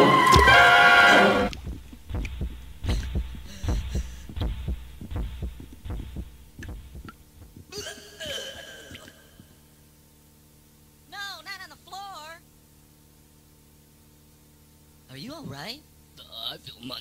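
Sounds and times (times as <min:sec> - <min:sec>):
dull thumps: 0:01.5 - 0:07.8.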